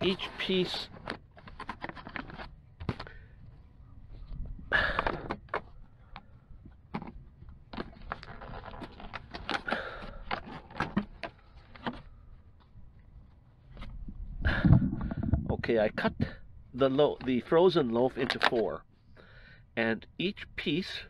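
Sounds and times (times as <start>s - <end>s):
plastic container crackling: 7.7s - 12.0s.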